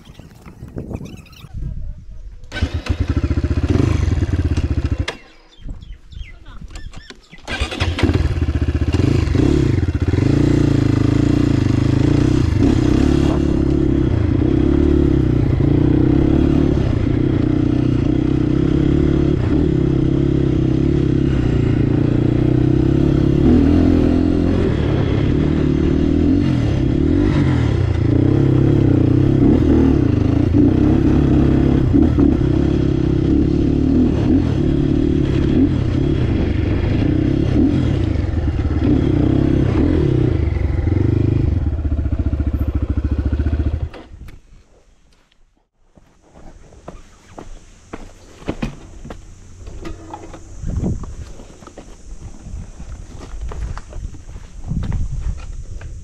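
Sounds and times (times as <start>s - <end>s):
dirt bike engine running: 2.6s - 5.9s, 7.5s - 44.0s.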